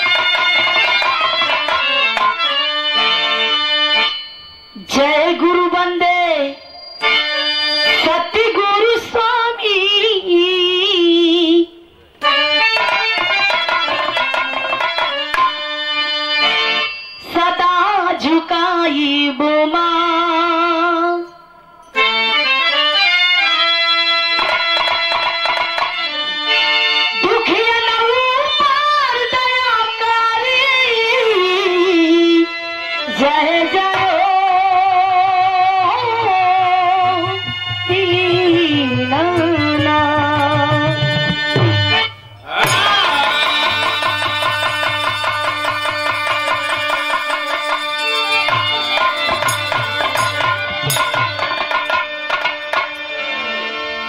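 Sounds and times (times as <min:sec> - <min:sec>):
harmonium: 0:00.0 - 0:54.0
woman singing folk song: 0:04.8 - 0:06.6, 0:08.0 - 0:11.7, 0:17.3 - 0:21.3, 0:27.2 - 0:32.5, 0:33.1 - 0:37.3, 0:37.9 - 0:40.8
drum: 0:36.9 - 0:53.0.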